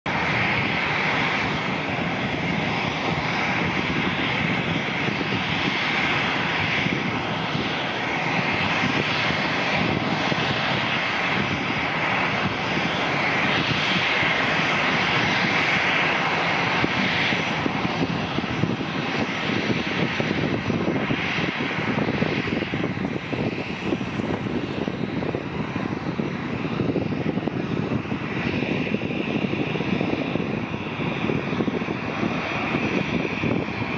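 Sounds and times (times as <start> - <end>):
jet airliner engines landing: 0.0 - 33.9.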